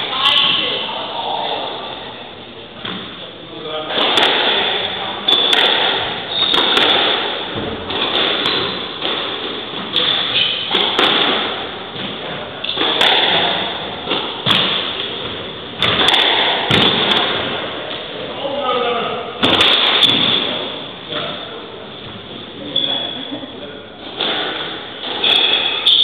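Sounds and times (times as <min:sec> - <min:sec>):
squash ball hitting walls: 0:03.8 - 0:17.9, 0:19.4 - 0:21.4, 0:24.0 - 0:26.0
racket striking ball: 0:03.9 - 0:17.6, 0:19.4 - 0:20.5.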